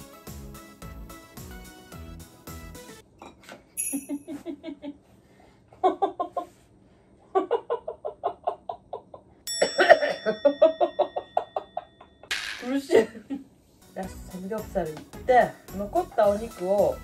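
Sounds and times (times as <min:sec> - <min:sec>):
background music: 0:00.0 - 0:03.0, 0:13.8 - 0:17.0
chime sound effect: 0:03.8 - 0:04.3
woman laughing stifled: 0:04.0 - 0:05.0.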